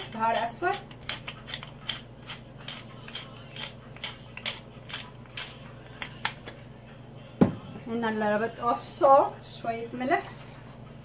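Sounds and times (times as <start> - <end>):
pepper mill grinding: 0.0 - 6.6.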